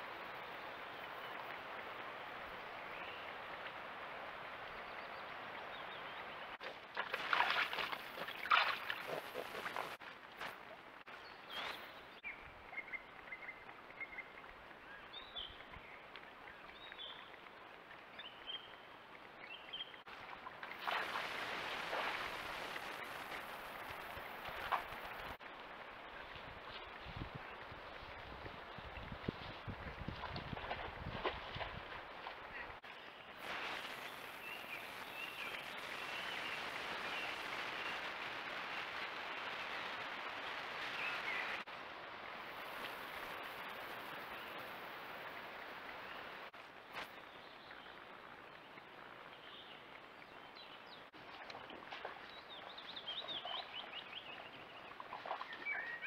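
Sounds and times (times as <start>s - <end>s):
steady outdoor hiss: 0.0s - 56.0s
steady hiss: 33.4s - 47.2s.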